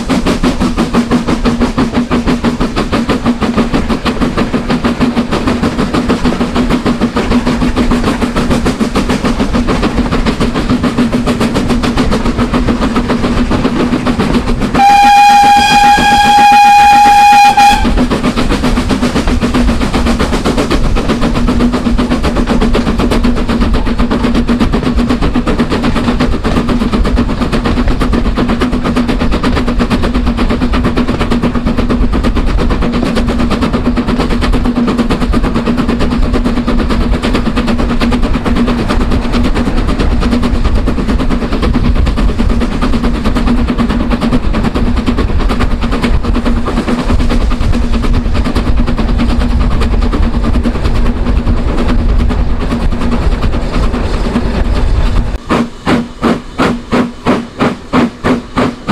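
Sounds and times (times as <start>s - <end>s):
steam train chugging: 0.0s - 58.9s
steam whistle: 14.7s - 18.0s.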